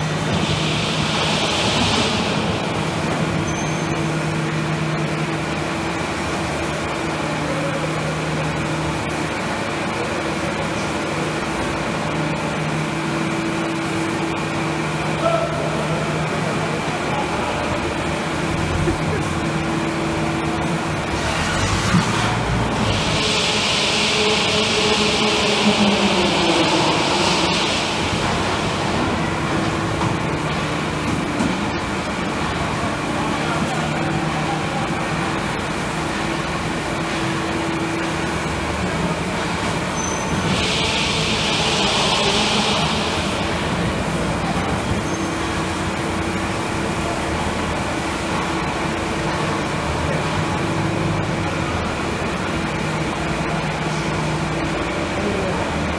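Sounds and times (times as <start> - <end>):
conveyors rumbling and humming: 0.0 - 55.9
factory machinery drone: 0.0 - 55.9
high hiss: 21.5 - 31.1, 34.2 - 46.5.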